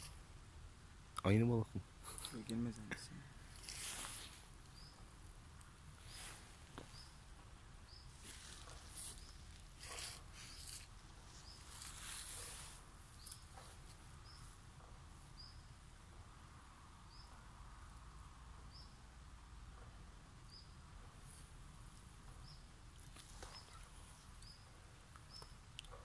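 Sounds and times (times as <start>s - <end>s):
faint rustling: 2.1s - 5.1s, 6.0s - 7.2s, 8.0s - 14.6s.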